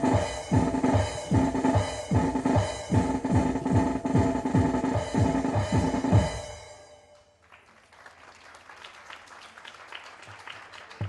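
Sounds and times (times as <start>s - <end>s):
dance music with drum strokes: 0.0s - 6.9s
audience applauding: 7.4s - 11.0s.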